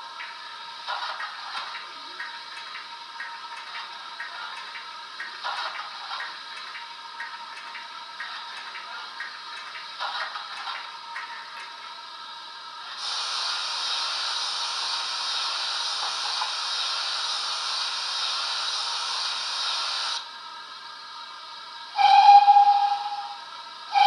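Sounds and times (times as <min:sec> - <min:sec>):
steam hiss from small speaker: 0:12.8 - 0:24.0
steam whistle blast: 0:21.9 - 0:24.0.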